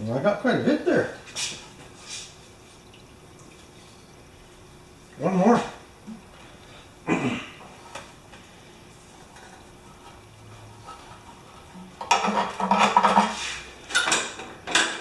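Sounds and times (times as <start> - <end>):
rag scraping in fuel tank: 9.0 - 13.8.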